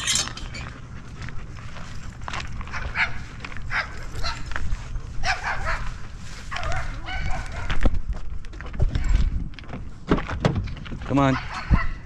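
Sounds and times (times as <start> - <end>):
small dog barking: 2.7 - 4.4, 5.2 - 5.9, 6.5 - 7.8, 11.3 - 12.0.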